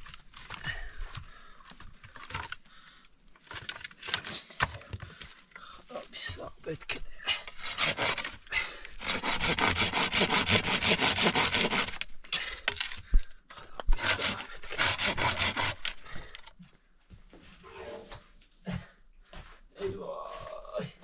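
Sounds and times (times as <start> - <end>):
hand saw cutting wood: 7.5 - 8.4, 9.0 - 12.1, 13.9 - 16.5.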